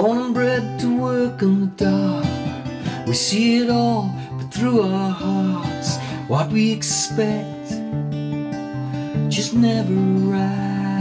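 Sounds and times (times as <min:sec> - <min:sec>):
man singing: 0:00.0 - 0:08.0, 0:09.0 - 0:11.0
acoustic guitar strumming: 0:00.0 - 0:11.0.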